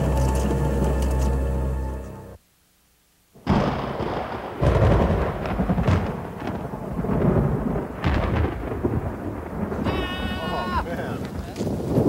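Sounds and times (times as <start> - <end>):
deep thunder rumbling: 3.4 - 12.0
thunder crack: 3.4 - 12.0.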